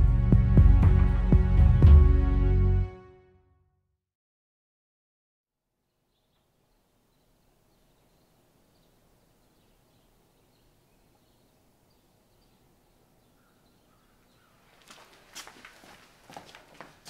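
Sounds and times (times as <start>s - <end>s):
bird chirps: 5.9s - 14.7s
clothing rustling: 14.6s - 17.0s.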